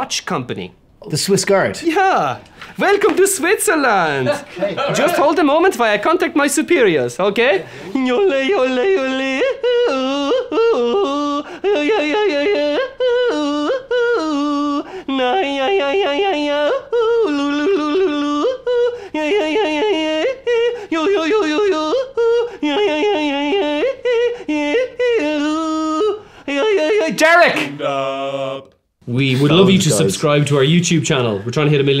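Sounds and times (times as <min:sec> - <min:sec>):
man yodeling: 0:07.9 - 0:28.7.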